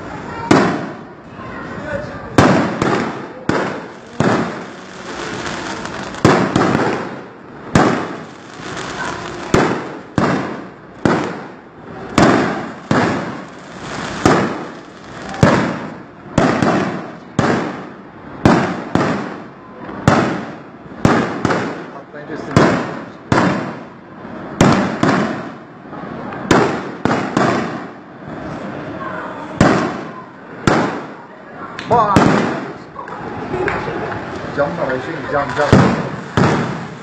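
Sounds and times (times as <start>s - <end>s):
firework shells bursting: 2.4s - 19.5s, 35.4s - 37.0s.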